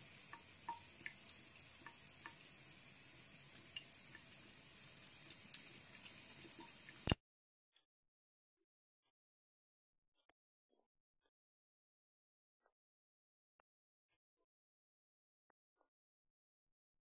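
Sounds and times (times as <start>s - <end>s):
faucet water trickling into sink: 0.0s - 7.2s.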